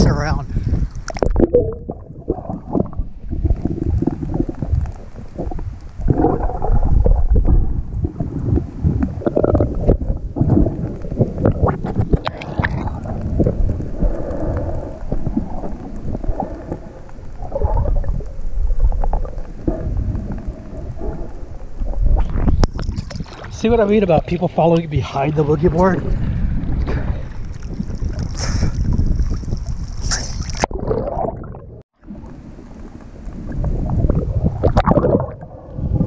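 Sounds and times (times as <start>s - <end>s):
water sloshing and gurgling underwater: 0.0s - 36.0s.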